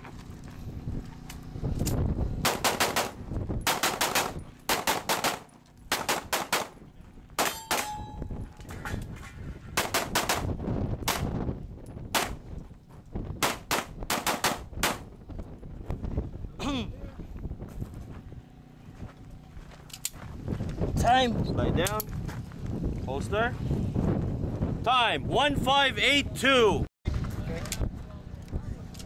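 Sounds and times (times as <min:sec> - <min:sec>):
pistol shots: 0:02.4 - 0:06.8, 0:09.8 - 0:11.3, 0:12.1 - 0:12.4, 0:13.4 - 0:15.1.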